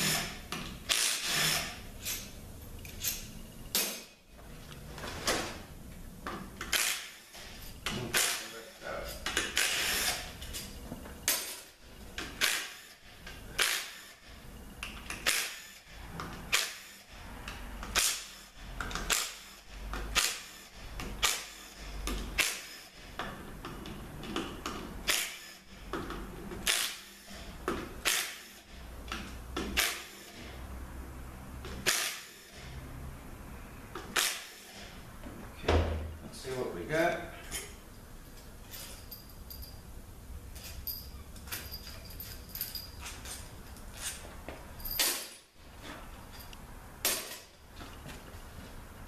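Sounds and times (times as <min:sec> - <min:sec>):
hand ratchet clicking: 0:09.1 - 0:10.6, 0:14.8 - 0:22.8, 0:26.6 - 0:27.3.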